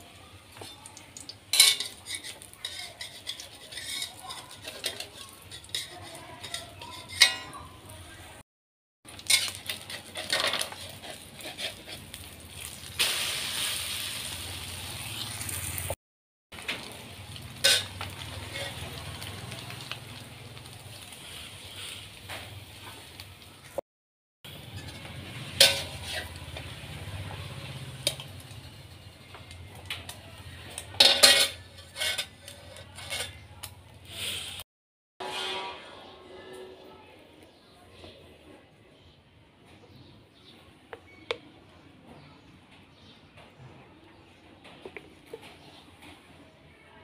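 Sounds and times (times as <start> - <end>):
eggs frying in oil: 0.0 - 6.9, 9.1 - 23.8, 24.5 - 31.0
spatula clinking on pan: 1.5 - 7.8
metal spatula scraping a wok: 1.5 - 7.9, 9.1 - 14.4, 17.5 - 19.9, 20.6 - 22.8, 24.5 - 28.6, 30.4 - 34.6, 35.2 - 37.0.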